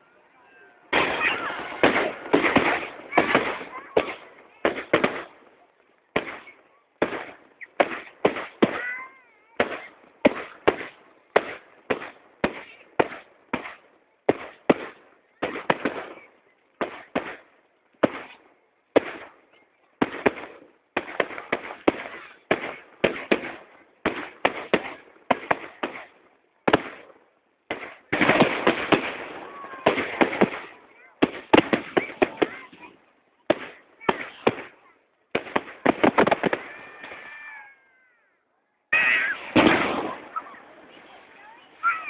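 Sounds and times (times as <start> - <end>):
firework shells bursting: 0.9 - 5.4, 38.9 - 42.0.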